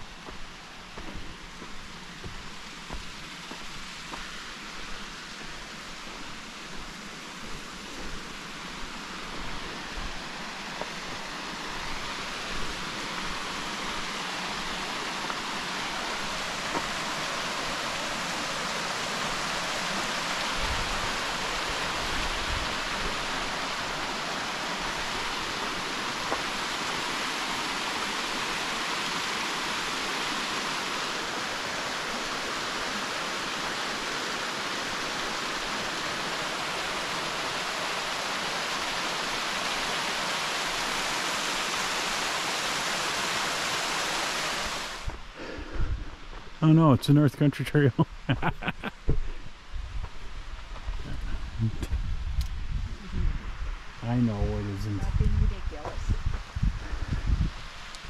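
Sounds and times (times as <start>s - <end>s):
waterfall rushing: 0.0s - 45.7s.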